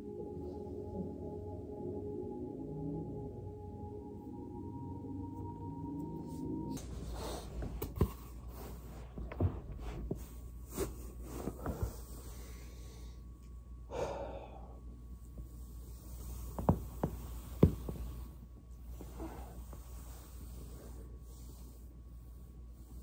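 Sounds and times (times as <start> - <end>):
body rolling on foam roller: 6.7 - 12.4, 15.7 - 23.0
breathy exhale: 13.9 - 14.8.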